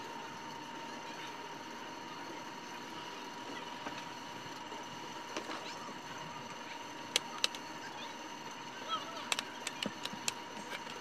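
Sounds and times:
faint steady whine: 0:00.0 - 0:11.0.

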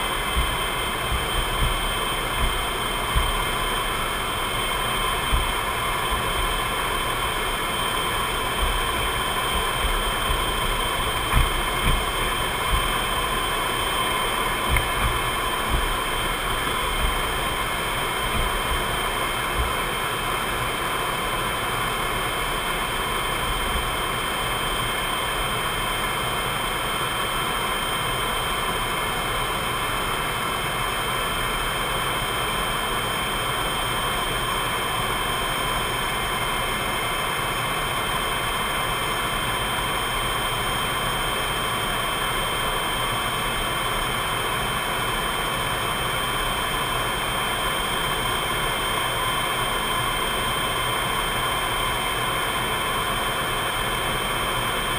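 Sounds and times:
jet engines whining: 0:00.0 - 0:27.7.

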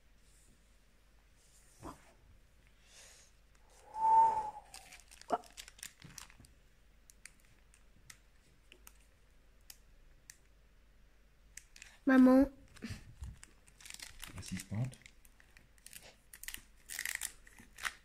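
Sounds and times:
loud whistled tone: 0:03.7 - 0:05.0
foil pack crinkling: 0:04.7 - 0:06.5, 0:12.8 - 0:18.0.

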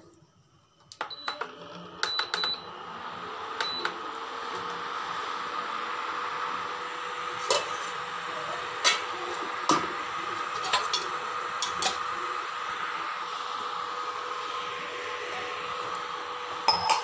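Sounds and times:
induction cooktop hum: 0:00.0 - 0:17.0
metal utensils clinking: 0:16.7 - 0:17.0.

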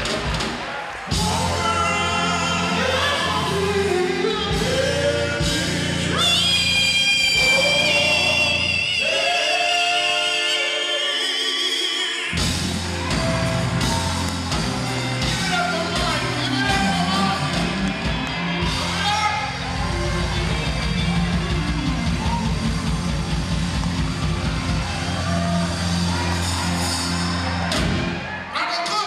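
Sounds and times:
bass and drums playing: 0:00.0 - 0:08.4, 0:12.4 - 0:28.2
vocal group singing gospel: 0:01.1 - 0:14.1.

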